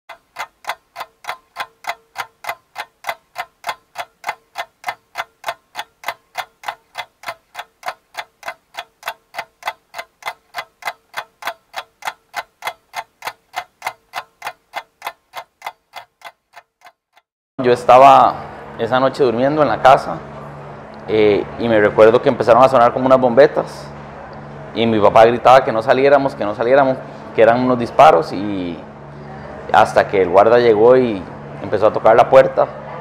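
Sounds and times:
clock ticking: 0:00.1 - 0:17.3.

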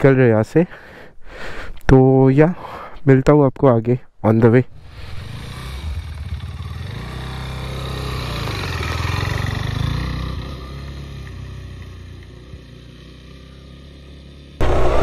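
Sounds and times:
motorcycle engine pulling away: 0:04.9 - 0:15.0.

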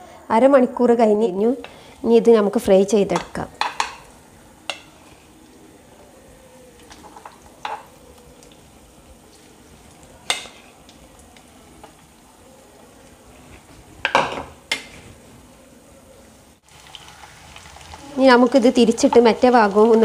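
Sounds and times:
chicken frying in oil: 0:06.6 - 0:15.2, 0:16.2 - 0:20.0.

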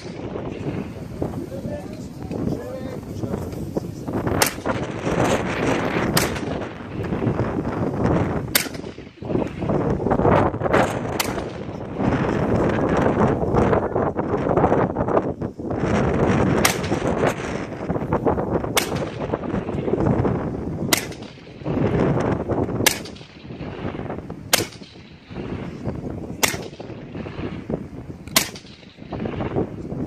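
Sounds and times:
rifle shots: 0:00.0 - 0:01.0, 0:04.3 - 0:07.3, 0:08.0 - 0:09.8, 0:10.7 - 0:12.2, 0:16.6 - 0:17.6, 0:18.7 - 0:20.1, 0:20.8 - 0:29.6.

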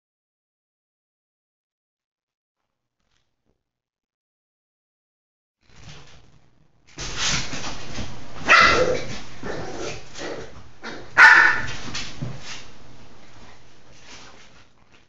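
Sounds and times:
dog barking: 0:08.4 - 0:09.8, 0:10.8 - 0:11.8.

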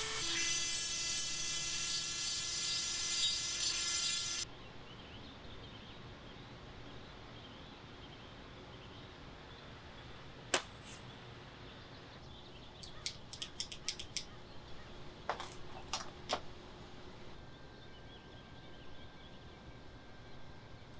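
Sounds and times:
light clicks and taps: 0:12.8 - 0:14.3
sharp click: 0:12.8 - 0:14.3.

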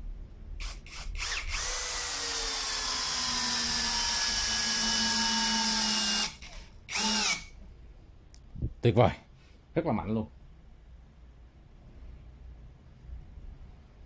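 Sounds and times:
cordless drill driving screw: 0:00.6 - 0:07.6.

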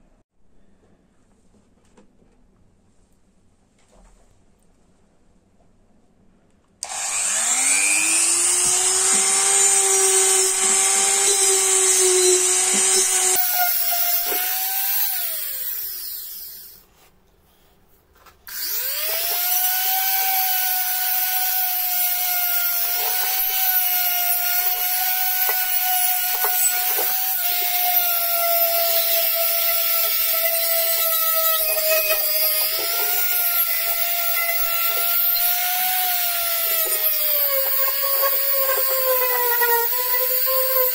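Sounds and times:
abrasive bit grinding metal: 0:06.8 - 0:16.8, 0:18.5 - 0:40.9
rotary tool high whine: 0:06.8 - 0:16.9, 0:18.5 - 0:40.9.

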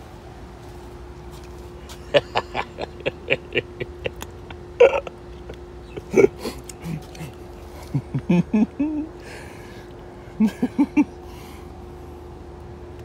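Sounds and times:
faint hum: 0:00.0 - 0:13.0
man snickering: 0:01.9 - 0:09.5, 0:10.4 - 0:11.2.

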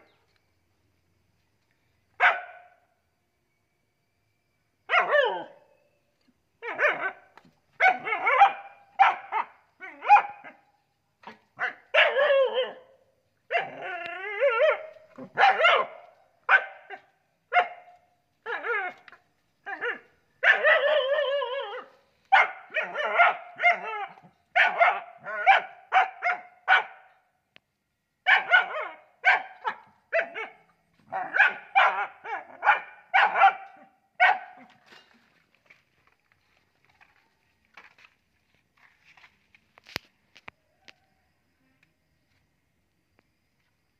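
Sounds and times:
young dogs barking: 0:07.8 - 0:10.6, 0:13.5 - 0:19.0, 0:19.7 - 0:27.1, 0:28.3 - 0:34.7.

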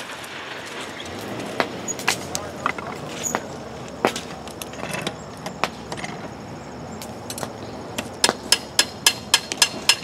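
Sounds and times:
hammer striking metal mold: 0:08.2 - 0:10.0.

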